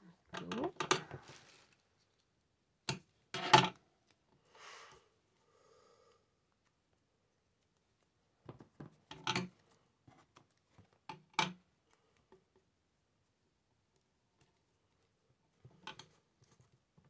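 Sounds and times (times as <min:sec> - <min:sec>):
handling rustle: 0:00.9 - 0:02.4.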